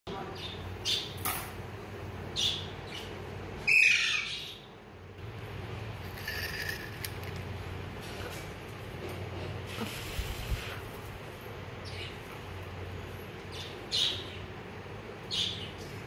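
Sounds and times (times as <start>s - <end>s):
parakeets squawking: 2.4s - 4.7s.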